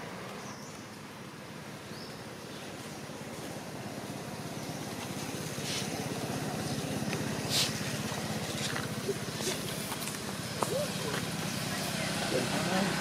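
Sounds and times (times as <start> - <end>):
rustles: 2.0 - 11.8
engine running: 2.7 - 13.0.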